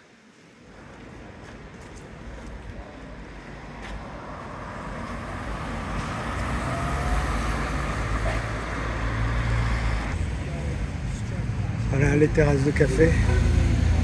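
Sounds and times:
vehicle engine approaching: 4.1 - 14.0.

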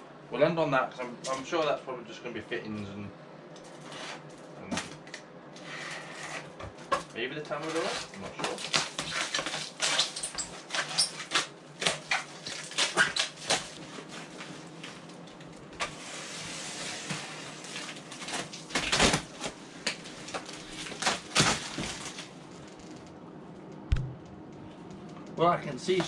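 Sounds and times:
cardboard and plastic ripping: 7.6 - 15.1, 15.8 - 22.8.

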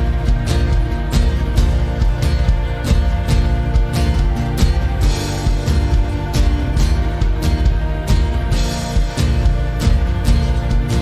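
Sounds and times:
acoustic guitar chords: 0.0 - 11.0
keyboard chords: 0.0 - 11.0.

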